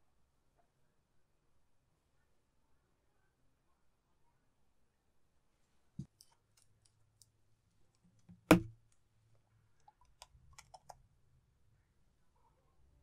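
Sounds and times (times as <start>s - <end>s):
small clicks of cap and brush: 9.8s - 11.0s.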